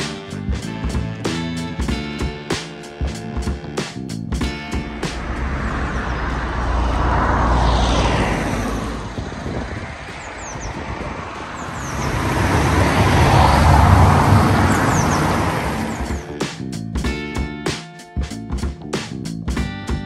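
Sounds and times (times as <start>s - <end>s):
motor vehicle passing: 3.0s - 16.8s.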